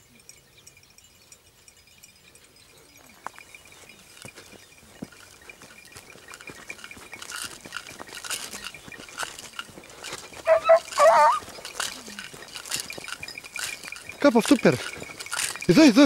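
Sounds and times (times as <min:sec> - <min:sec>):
footsteps on dirt track: 0:02.8 - 0:16.0
dog baying: 0:10.4 - 0:12.3.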